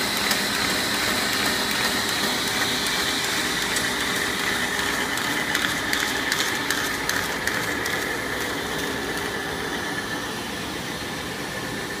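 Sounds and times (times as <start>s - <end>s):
machine clicks: 0.0s - 9.4s
paper folder machine humming: 0.0s - 12.0s.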